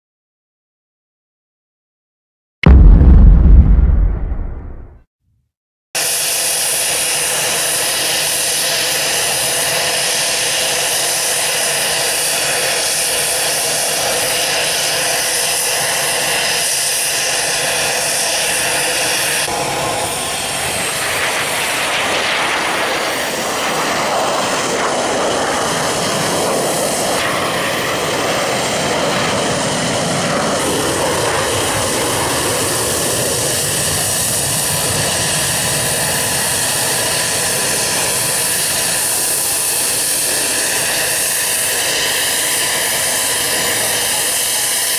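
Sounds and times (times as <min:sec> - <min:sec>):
jets taking off: 0:02.6 - 0:05.0
helicopter engines whining: 0:22.6 - 0:44.9.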